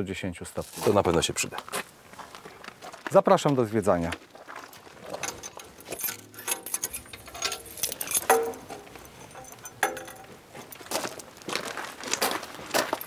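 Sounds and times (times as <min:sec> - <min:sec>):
metallic knocks: 0:05.1 - 0:11.0
keys jangling in a lock: 0:05.1 - 0:11.1.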